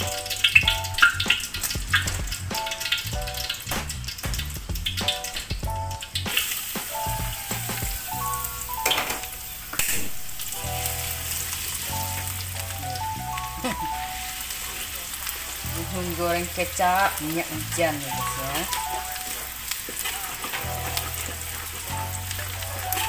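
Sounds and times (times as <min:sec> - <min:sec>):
oil sizzling in a wok: 0:00.0 - 0:23.0
metal ladle stirring: 0:18.3 - 0:23.0.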